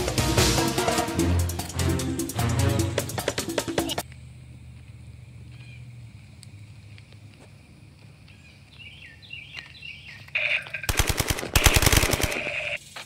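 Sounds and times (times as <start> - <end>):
toy gun automatic fire: 10.8 - 12.8.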